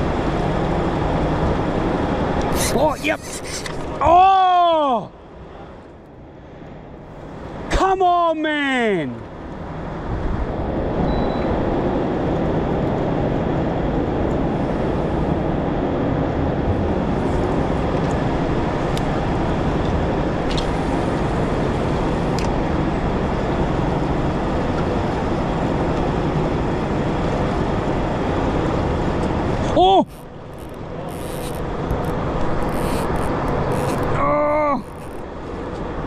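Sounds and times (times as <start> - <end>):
boat motor running: 16.6 - 35.6.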